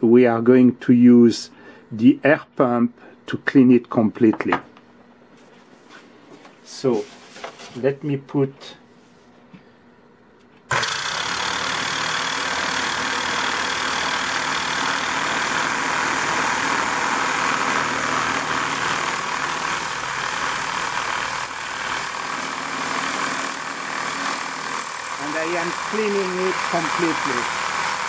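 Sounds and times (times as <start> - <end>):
air pump motor hum: 10.7 - 28.0.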